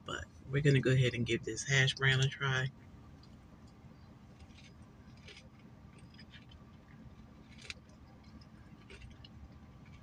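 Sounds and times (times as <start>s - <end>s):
low steady hum: 0.0s - 10.0s
mouth and eating noises: 3.2s - 10.0s.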